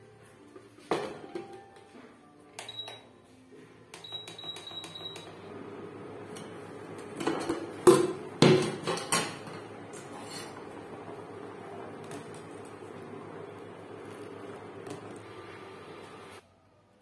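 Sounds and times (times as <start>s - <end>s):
cooktop control panel beeping: 2.6s - 3.1s, 3.9s - 8.4s
metal pot lid clanking: 7.2s - 10.6s
boiling water bubbling: 10.6s - 16.4s.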